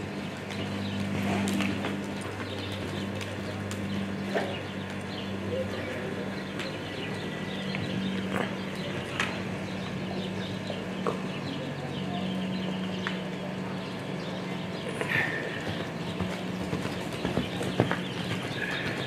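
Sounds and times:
horse hoofbeats on dirt: 0.0 - 5.8, 14.3 - 19.0
small birds chirping: 0.0 - 19.0
steady low hum: 0.0 - 19.0.

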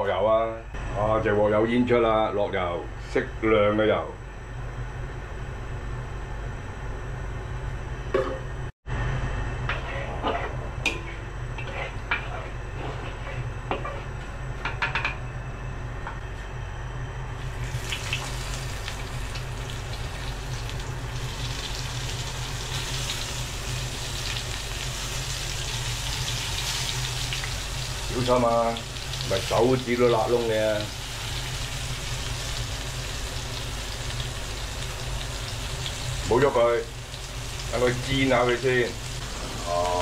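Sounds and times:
stove humming: 0.0 - 40.0
oil sizzling in a wok: 17.4 - 40.0.

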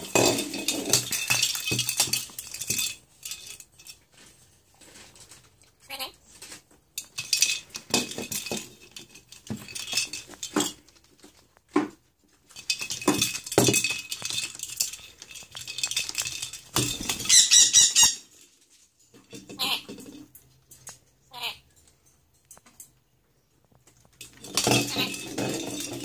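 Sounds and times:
plastic ball rattling: 0.0 - 4.2, 7.0 - 11.6, 12.4 - 21.0, 24.0 - 26.0.

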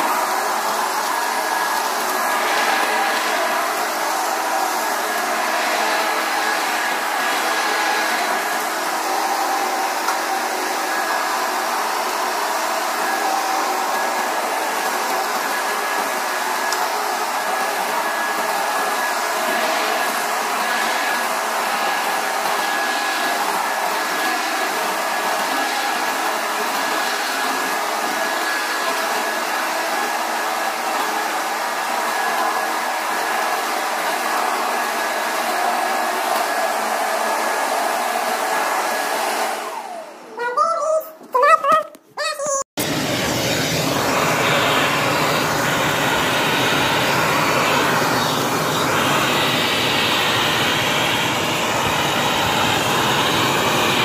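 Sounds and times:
upright vacuum cleaner running: 0.0 - 40.4, 42.8 - 54.0.

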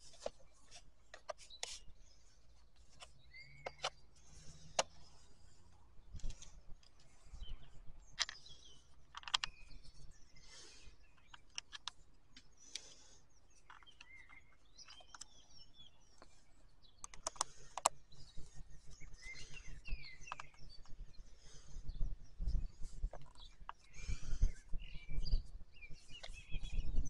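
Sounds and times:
birds chirping: 0.0 - 27.0
clicks and taps of plastic housing: 2.9 - 4.0, 8.2 - 9.7, 11.2 - 12.9, 17.0 - 18.0, 20.2 - 20.6.

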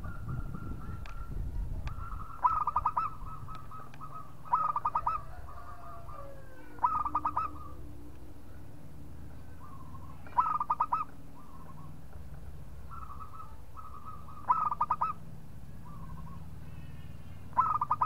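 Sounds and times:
dove cooing: 0.0 - 8.7, 9.4 - 12.0, 12.8 - 16.5, 17.5 - 18.0.

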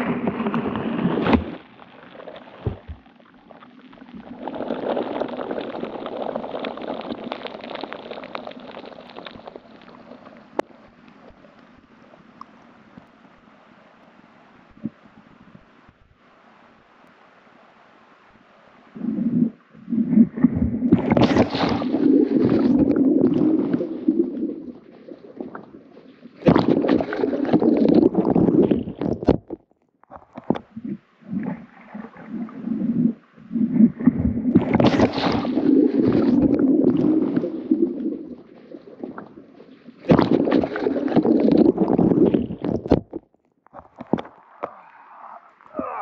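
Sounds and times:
water churning and splashing: 0.0 - 11.5, 20.2 - 29.5, 30.1 - 44.8.

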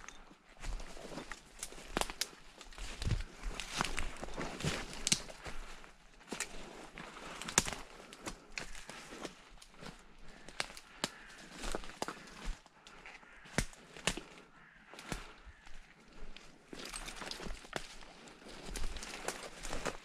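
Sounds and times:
footsteps through dry leaves: 0.6 - 12.7, 13.3 - 20.0
sharp crackles and snaps: 1.5 - 4.0, 4.9 - 5.5, 7.4 - 8.9.

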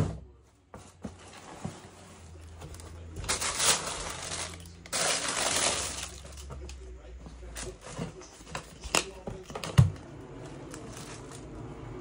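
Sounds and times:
tissue paper rustling and crinkling: 1.2 - 6.6, 10.4 - 11.8.

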